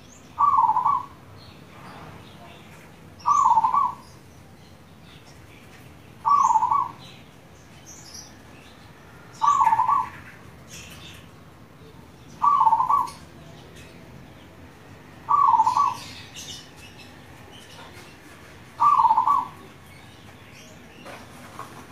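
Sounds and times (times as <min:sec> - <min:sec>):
dove cooing: 0:00.4 - 0:01.2, 0:03.2 - 0:04.0, 0:06.2 - 0:07.0, 0:09.4 - 0:10.3, 0:12.4 - 0:13.3, 0:15.2 - 0:16.3, 0:18.8 - 0:19.7.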